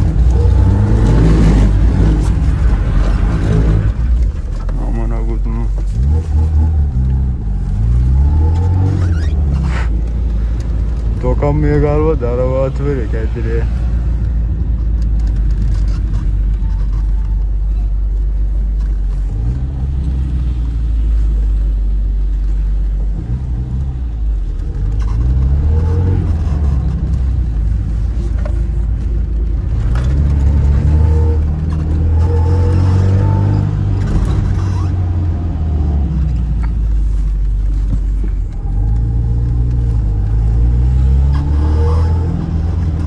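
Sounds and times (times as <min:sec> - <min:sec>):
car engine revving from inside: 0:05.9 - 0:09.8, 0:29.8 - 0:36.5, 0:38.6 - 0:43.0.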